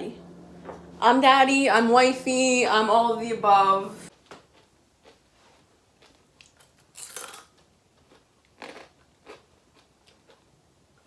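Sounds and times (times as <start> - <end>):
person crunching food: 4.1 - 10.6.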